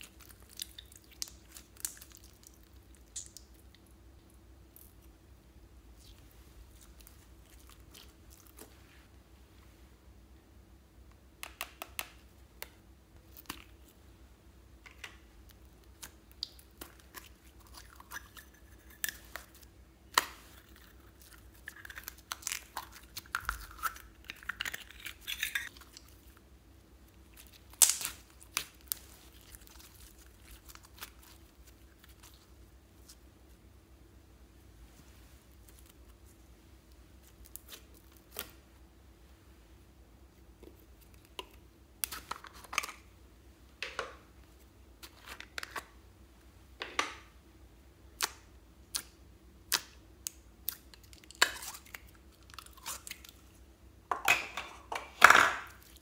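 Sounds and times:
slime squelching and crackling: 0:00.0 - 0:05.1, 0:05.9 - 0:09.0, 0:15.4 - 0:26.4, 0:27.0 - 0:33.6, 0:35.4 - 0:38.6.

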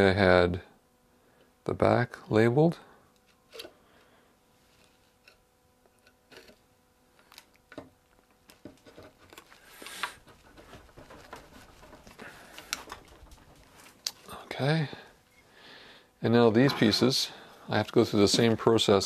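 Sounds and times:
wooden chair parts knocking: 0:10.2 - 0:14.1.

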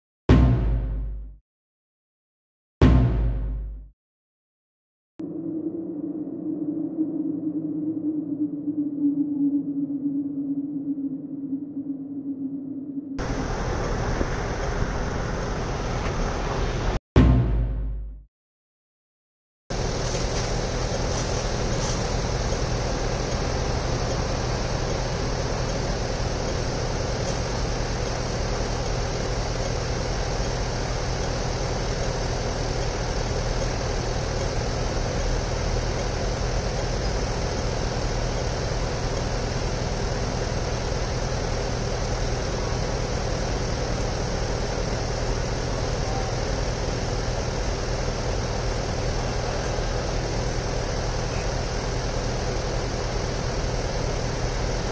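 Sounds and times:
traffic and engines running: 0:13.2 - 0:17.0, 0:19.7 - 0:54.9
constant low hum: 0:19.8 - 0:54.9.

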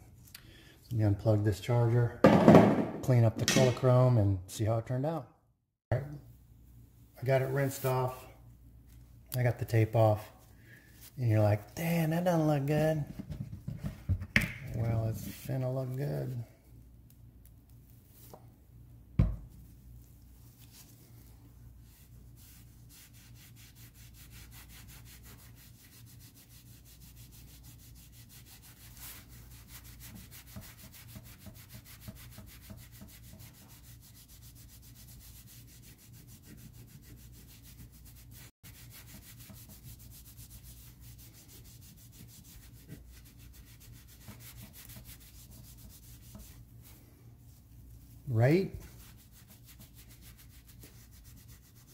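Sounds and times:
pad rubbing on metal: 0:21.8 - 0:51.9.

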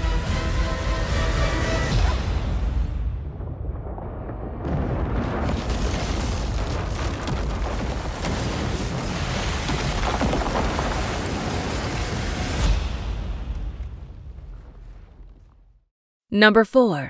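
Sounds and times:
deep rumble of buildings collapsing: 0:02.3 - 0:15.9.

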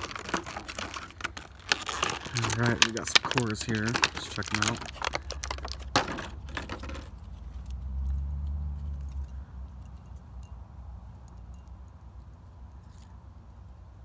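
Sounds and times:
plastic packaging crinkling: 0:00.0 - 0:07.2.

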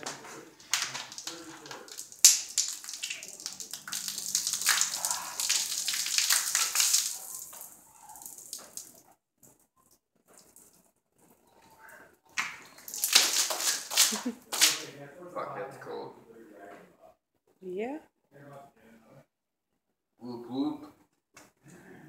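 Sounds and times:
soda fizzing and splashing: 0:00.0 - 0:09.0, 0:12.4 - 0:14.9.

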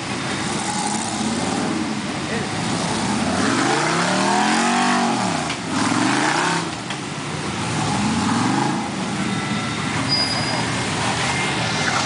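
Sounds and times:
buggy engine revving: 0:00.0 - 0:09.3.

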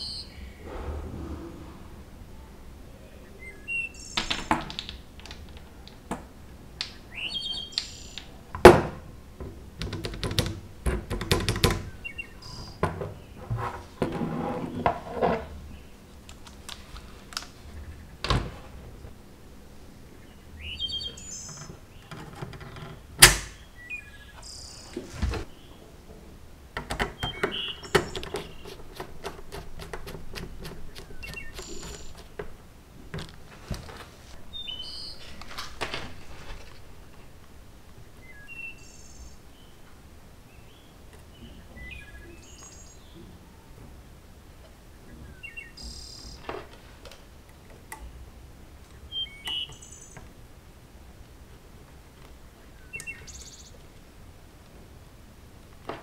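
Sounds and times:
bird chirps: 0:03.0 - 0:04.5, 0:06.9 - 0:08.4, 0:11.9 - 0:13.4, 0:20.1 - 0:22.1, 0:23.6 - 0:25.8, 0:27.2 - 0:28.8, 0:30.8 - 0:32.2, 0:34.5 - 0:35.3, 0:38.1 - 0:39.8, 0:40.5 - 0:43.3, 0:49.0 - 0:50.2, 0:52.8 - 0:53.8.

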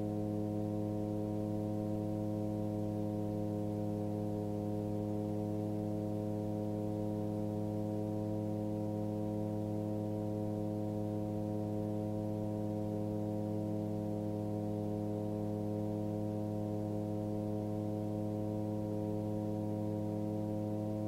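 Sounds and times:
light aircraft engine drone: 0:00.0 - 0:21.0.

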